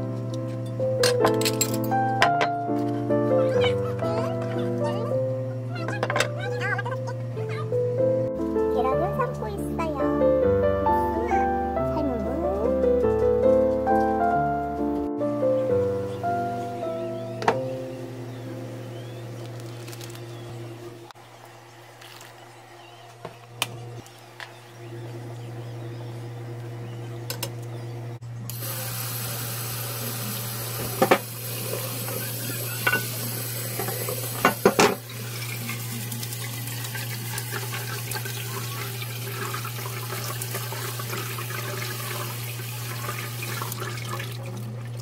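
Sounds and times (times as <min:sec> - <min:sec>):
cookware clanking against sink: 0:01.0 - 0:02.6, 0:05.9 - 0:06.4, 0:30.8 - 0:35.1
steady low hum: 0:16.4 - 0:45.0
water splashing into sink: 0:28.5 - 0:45.0.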